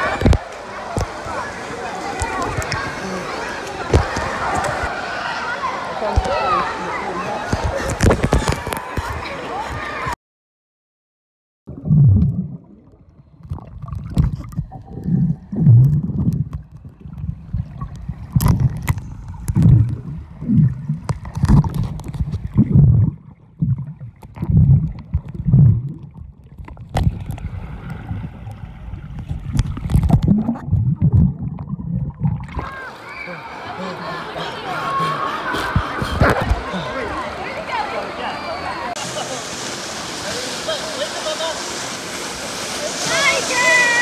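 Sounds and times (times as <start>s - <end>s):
muffled underwater surges and gurgling: 11.7s - 37.5s.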